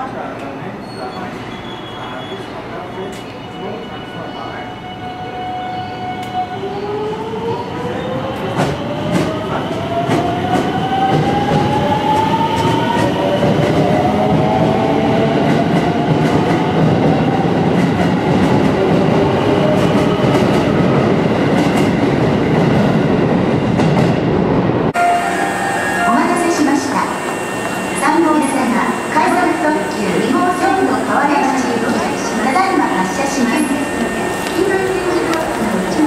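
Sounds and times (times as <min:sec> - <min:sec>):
wheels rumbling on rail: 0:10.0 - 0:36.0
train inverter whine: 0:24.9 - 0:36.0
clicks of passing train cars: 0:34.4 - 0:36.0.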